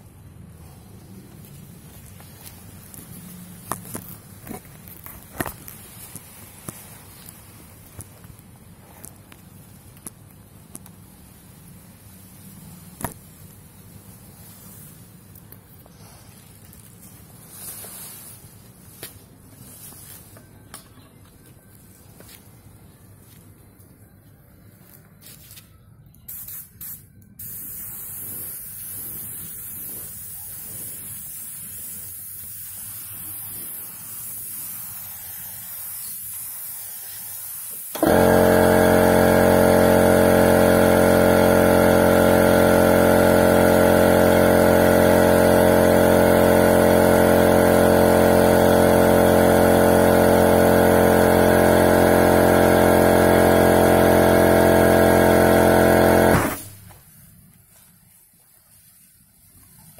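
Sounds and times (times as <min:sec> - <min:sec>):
spray gun hissing: 0:26.3 - 0:56.9
air compressor humming: 0:37.8 - 0:57.3.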